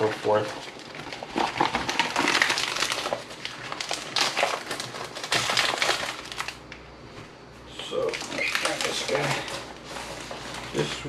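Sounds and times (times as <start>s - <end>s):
leaves rustling and crinkling: 7.9s - 11.0s.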